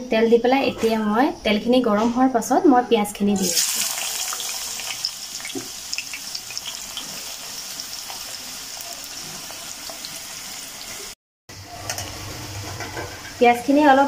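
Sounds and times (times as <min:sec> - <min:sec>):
onions sizzling in hot oil: 0:03.4 - 0:11.2.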